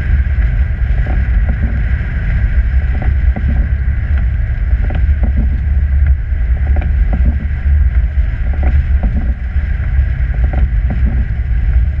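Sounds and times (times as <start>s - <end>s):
engine and tyres rumbling: 0.0s - 12.0s
light knocks and rattles: 3.0s - 7.5s, 8.4s - 9.4s.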